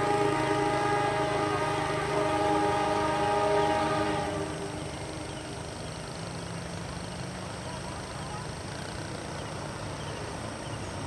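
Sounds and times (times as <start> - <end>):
train horn chord: 0.0 - 5.8
low steady rumble: 0.0 - 11.0.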